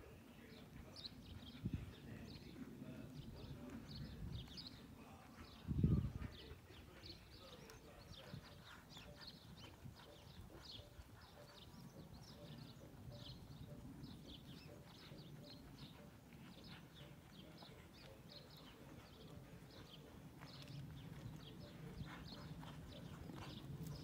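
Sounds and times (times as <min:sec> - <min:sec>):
birds chirping: 0:00.0 - 0:24.0
horse hoofbeats on sand: 0:00.2 - 0:24.0.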